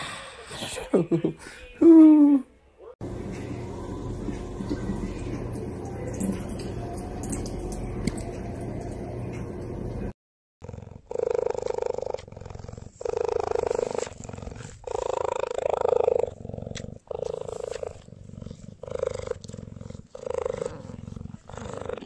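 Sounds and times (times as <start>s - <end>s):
cat purring: 10.6s - 22.0s.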